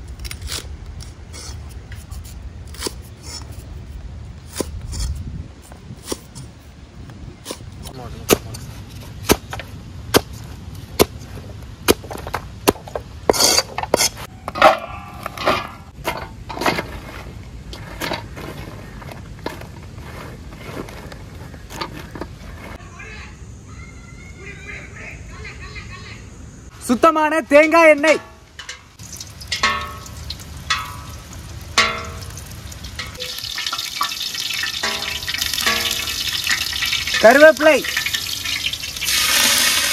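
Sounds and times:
rustling and clattering: 11.5 - 22.8, 28.2 - 38.2
oil sizzling in a pot: 29.0 - 39.9.

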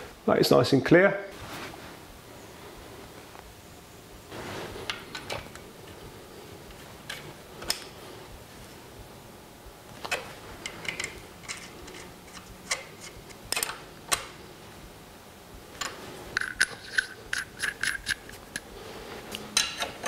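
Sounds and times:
spanner clicking on metal: 16.4 - 18.6.

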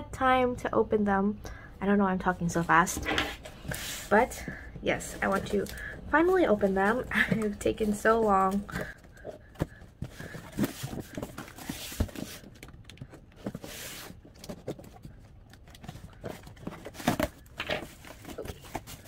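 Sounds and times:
cardboard flaps rustling open: 7.4 - 19.0.

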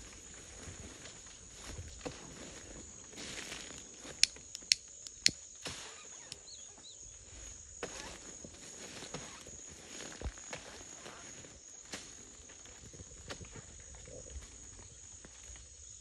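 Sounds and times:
insects droning: 0.0 - 16.0
sharp clicks: 4.2 - 5.4
faint bird chirps: 5.8 - 7.4.

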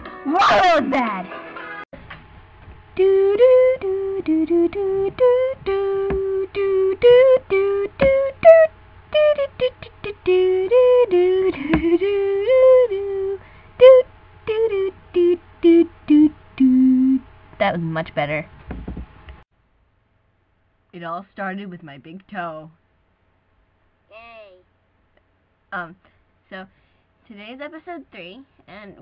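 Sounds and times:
person singing wordless tune: 3.0 - 17.2.

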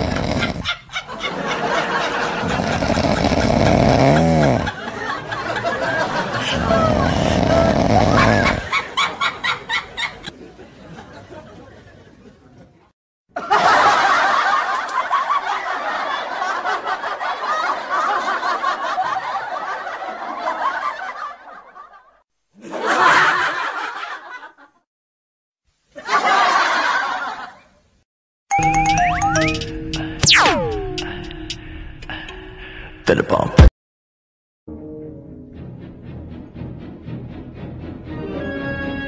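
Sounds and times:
people laughing: 0.1 - 3.2, 4.2 - 24.8, 26.0 - 27.7.

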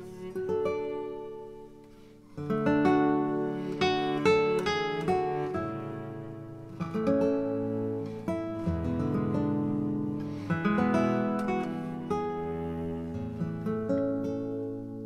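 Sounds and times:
acoustic guitar music: 0.0 - 15.0.

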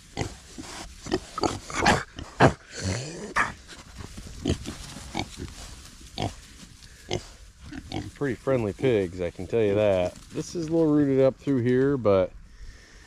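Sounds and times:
pigs grunting and snorting: 0.0 - 10.2.

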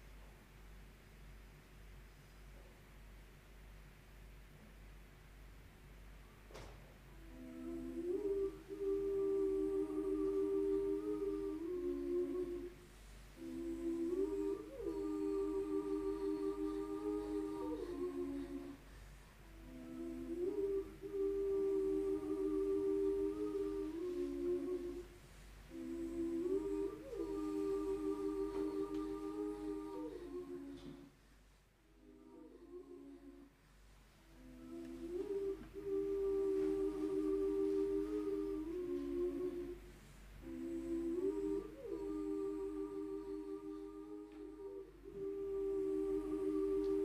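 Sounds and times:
person humming: 7.1 - 12.8, 13.4 - 18.8, 19.4 - 31.2, 34.2 - 47.0.

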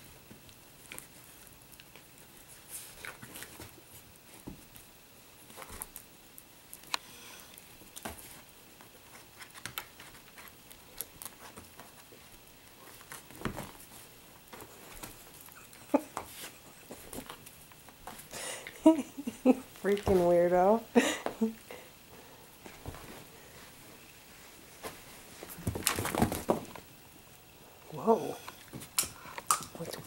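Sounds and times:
paws scuffing on carpet: 22.6 - 25.8.

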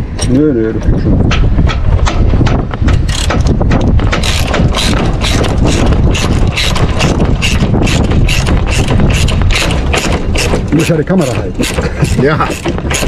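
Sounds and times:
ratchet wrench clicking: 3.0 - 3.5, 4.2 - 11.0.

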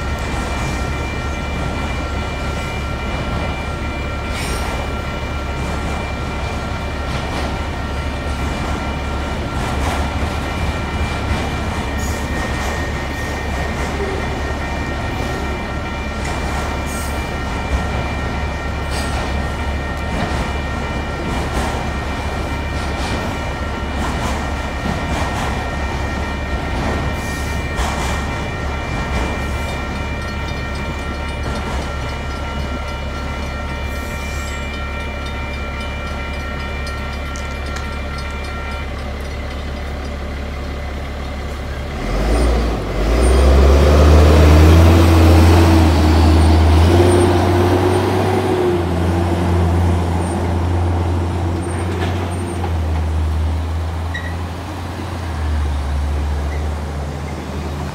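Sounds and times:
freight train rumbling: 0.0 - 57.9
railroad crossing bells ringing: 0.0 - 57.9
truck engine accelerating: 41.9 - 48.5.

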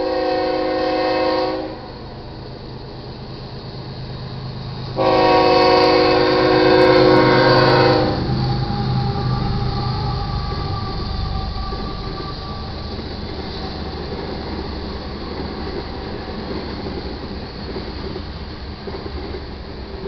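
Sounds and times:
diesel locomotives passing: 0.0 - 20.0
freight car wheels rumbling: 5.9 - 20.0.

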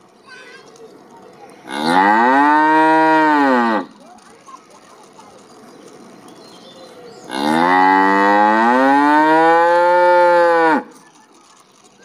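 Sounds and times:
cow mooing: 1.7 - 3.9, 7.3 - 10.9.

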